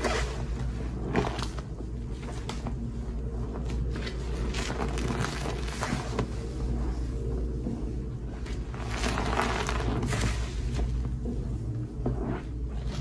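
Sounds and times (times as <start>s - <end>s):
sponge squelching in water: 8.5s - 11.0s.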